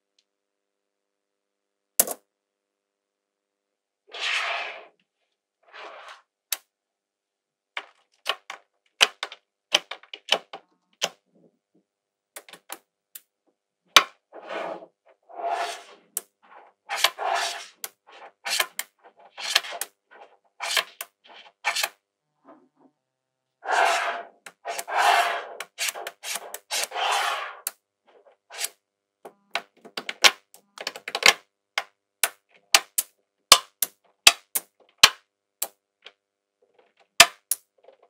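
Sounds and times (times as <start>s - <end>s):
balls rolling on a hard table: 14.3s - 21.0s, 23.6s - 27.7s.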